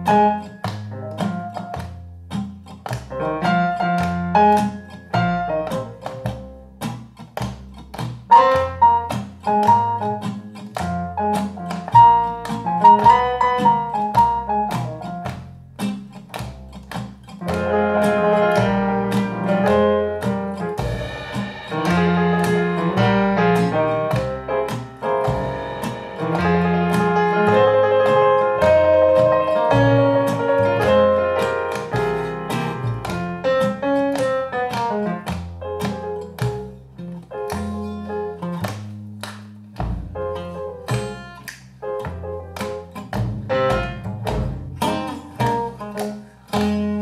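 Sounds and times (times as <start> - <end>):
plucked guitar-like notes: 0.0 - 47.0
bass line: 17.4 - 35.8, 43.1 - 45.9
keyboard chords: 17.5 - 35.8.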